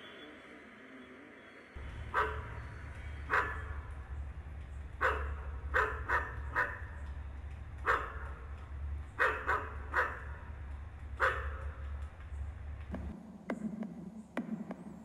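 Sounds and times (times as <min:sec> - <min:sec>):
steady low hum: 0:01.8 - 0:15.0
dog barking: 0:02.0 - 0:03.9, 0:05.0 - 0:07.0, 0:07.8 - 0:08.6, 0:09.2 - 0:10.6, 0:11.2 - 0:12.0.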